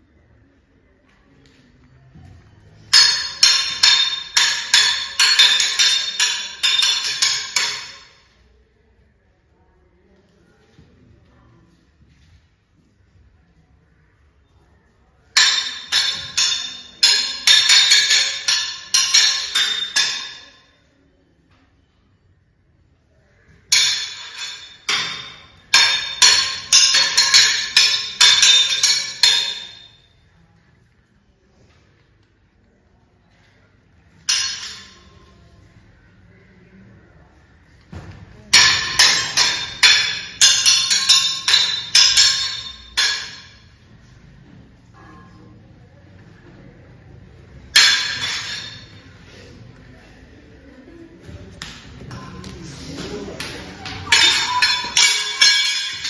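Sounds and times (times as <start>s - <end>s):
metal blades clashing: 2.9s - 8.1s, 15.4s - 20.5s, 38.5s - 43.5s, 47.8s - 48.9s, 53.8s - 56.0s
metal striking metal: 2.9s - 8.2s, 23.7s - 30.0s, 38.5s - 43.6s, 47.7s - 49.0s, 53.4s - 56.0s.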